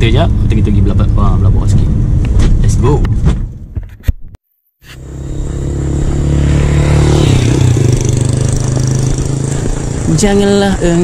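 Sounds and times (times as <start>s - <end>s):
motorcycle engine running: 4.8s - 11.0s.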